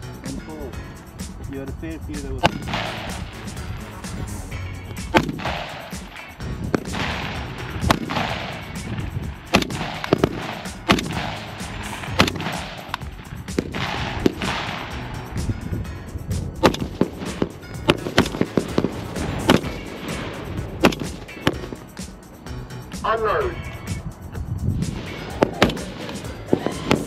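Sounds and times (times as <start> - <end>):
rifle shots with echo: 2.4 - 3.6, 5.1 - 15.0, 16.6 - 21.7.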